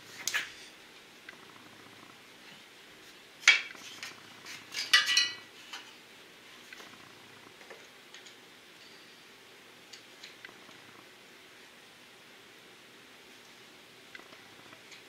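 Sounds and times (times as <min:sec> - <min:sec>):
screwdriver clinking against metal: 0:04.8 - 0:05.4.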